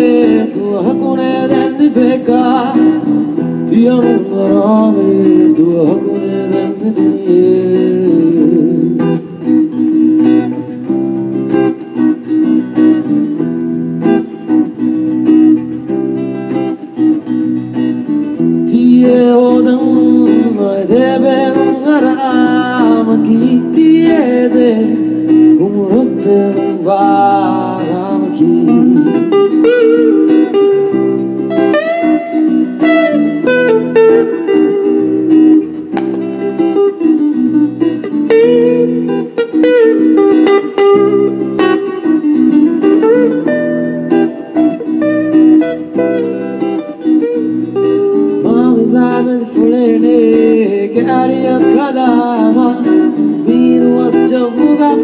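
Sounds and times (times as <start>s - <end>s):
bending guitar melody: 0.0s - 55.0s
electric guitar chords: 0.0s - 55.0s.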